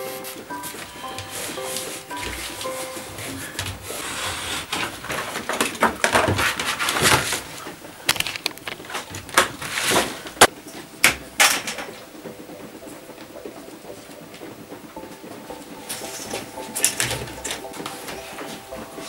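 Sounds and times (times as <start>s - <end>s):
cardboard rustling and sliding: 0.2s - 7.8s, 8.6s - 10.5s
sharp clicks and knocks: 4.7s - 19.0s.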